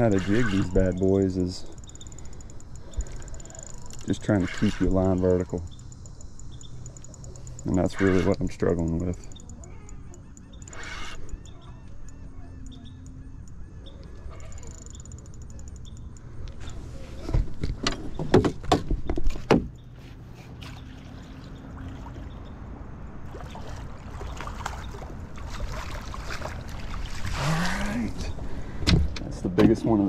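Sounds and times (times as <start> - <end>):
spinning reel cranking: 0.0 - 9.8, 10.4 - 11.5, 14.4 - 16.2
water splashing: 20.6 - 22.4, 23.2 - 28.0.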